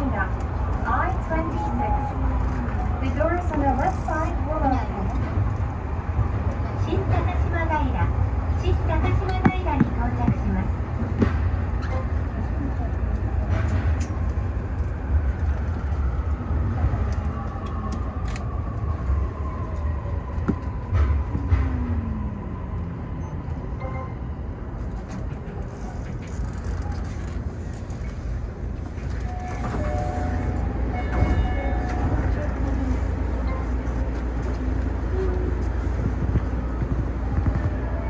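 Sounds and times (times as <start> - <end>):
low running rumble: 31.8 - 38.0.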